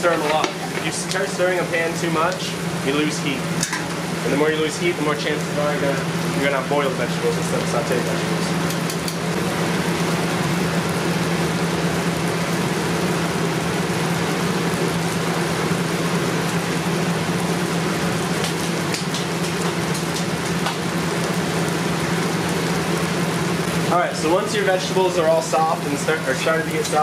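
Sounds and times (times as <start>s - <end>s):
vegetables sizzling in a pot: 0.0s - 27.0s
sharp crackles: 14.2s - 27.0s.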